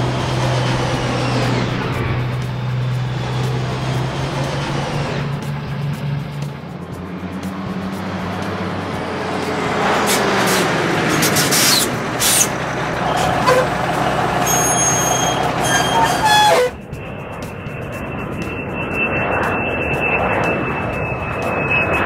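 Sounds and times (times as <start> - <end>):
truck engine running: 0.0 - 18.4
air brake hisses: 10.0 - 12.5.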